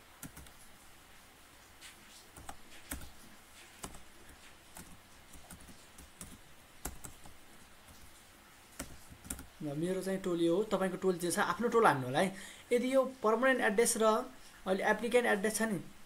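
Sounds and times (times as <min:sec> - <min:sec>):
faint keyboard typing: 0:00.0 - 0:00.9, 0:01.6 - 0:10.0.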